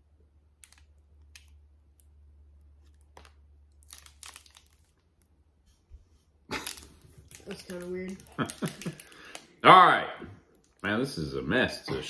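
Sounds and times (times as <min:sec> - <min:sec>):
foil wrapper crinkling: 0:02.8 - 0:05.3, 0:06.5 - 0:09.5.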